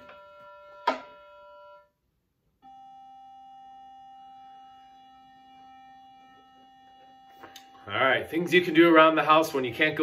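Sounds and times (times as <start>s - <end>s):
electronic tuning tone: 2.6s - 10.0s.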